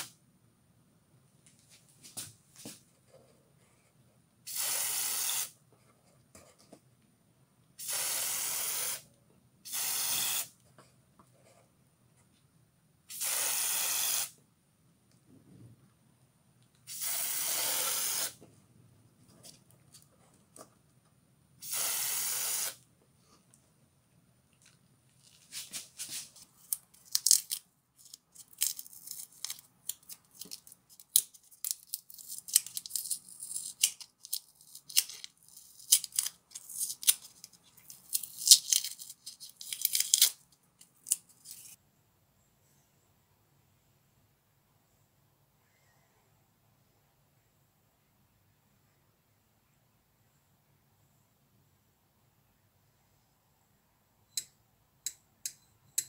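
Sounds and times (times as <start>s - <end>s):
spray paint can hissing: 4.5s - 5.6s, 7.8s - 9.0s, 9.7s - 10.5s, 13.1s - 14.4s, 16.9s - 18.4s, 21.6s - 22.8s.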